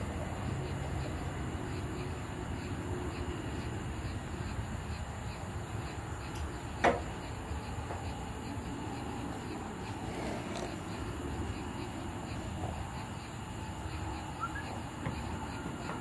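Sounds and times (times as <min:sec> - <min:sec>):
fan running: 0:00.0 - 0:16.0.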